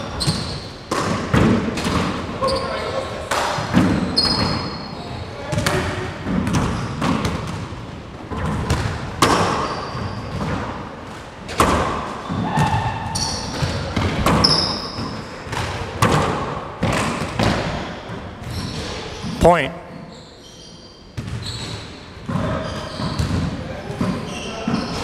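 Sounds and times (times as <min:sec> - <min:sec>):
shoes squeaking on floor: 0:00.0 - 0:00.9, 0:02.4 - 0:03.1, 0:03.8 - 0:05.4, 0:09.5 - 0:10.5, 0:12.2 - 0:15.3, 0:17.8 - 0:25.0.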